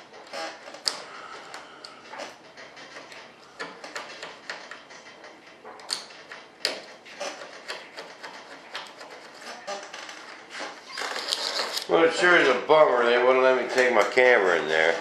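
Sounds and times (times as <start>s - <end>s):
hand tool scraping a mold: 6.6s - 11.9s.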